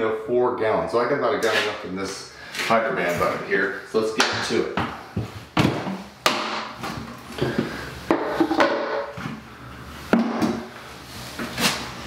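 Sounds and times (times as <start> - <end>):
plastic bucket knocks and scrapes: 10.1 - 10.7.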